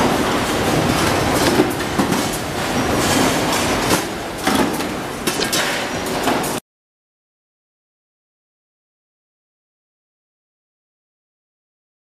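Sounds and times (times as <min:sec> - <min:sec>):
factory machinery clattering: 0:00.0 - 0:06.6.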